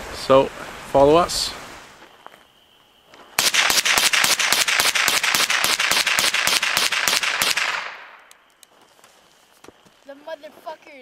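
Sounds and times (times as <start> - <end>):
rifle firing rapid shots: 3.4 - 8.1.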